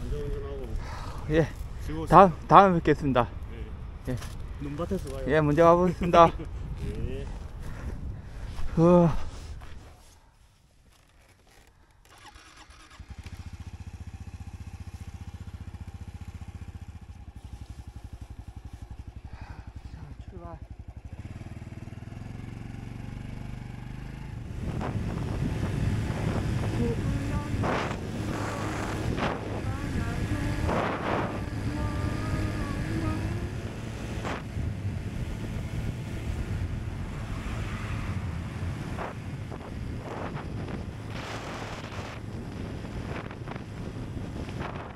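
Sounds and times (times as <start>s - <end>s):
wind buffeting microphone: 0.0s - 8.8s, 24.3s - 44.9s
motorcycle engine starting: 11.3s - 44.9s
motorcycle engine idling: 12.0s - 37.1s.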